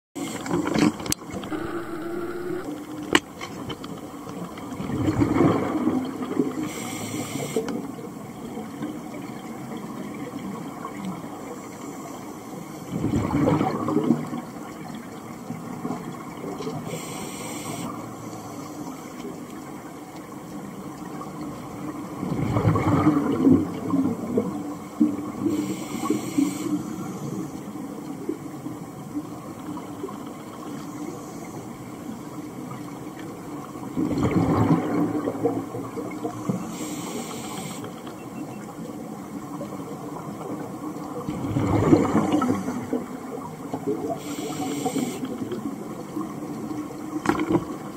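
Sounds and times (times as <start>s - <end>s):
steady underwater wash: 0.2s - 47.9s
exhaled bubbles rushing: 4.8s - 6.5s, 12.9s - 14.5s, 22.2s - 24.5s, 33.8s - 36.4s, 41.2s - 44.0s
regulator inhalation hiss: 6.7s - 7.6s, 16.9s - 18.6s, 25.5s - 27.3s, 36.6s - 37.9s, 44.2s - 45.3s.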